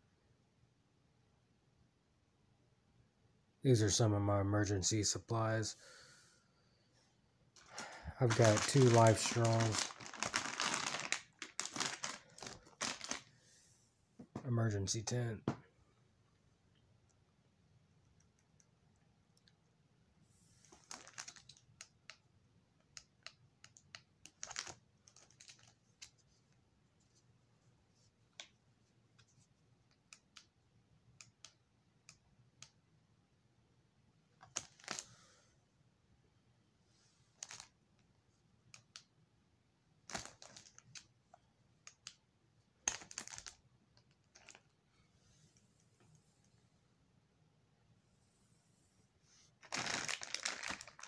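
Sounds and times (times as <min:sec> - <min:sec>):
packaging rustling: 0:07.6 - 0:13.3, 0:20.7 - 0:21.6, 0:34.4 - 0:35.0, 0:37.4 - 0:37.7, 0:40.1 - 0:41.1, 0:42.9 - 0:44.7, 0:49.6 - 0:51.0
plastic packaging clicks and crinkles: 0:07.6 - 0:13.3, 0:20.6 - 0:22.2, 0:23.2 - 0:26.2, 0:34.4 - 0:35.1, 0:37.4 - 0:37.8, 0:40.0 - 0:41.1, 0:42.8 - 0:44.8, 0:49.6 - 0:51.0.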